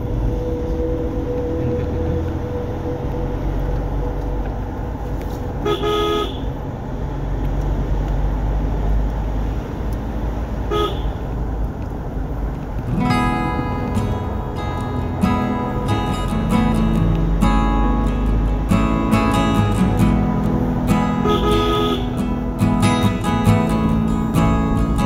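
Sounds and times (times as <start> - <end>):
engine and road rumble: 0.0 - 25.0
car horn honking: 5.3 - 6.6, 10.7 - 11.2, 21.1 - 22.4.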